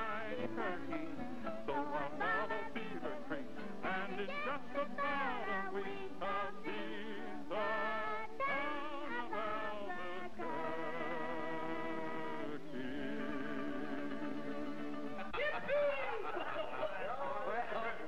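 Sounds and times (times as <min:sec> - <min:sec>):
old western instrumental music: 0:10.4 - 0:16.4.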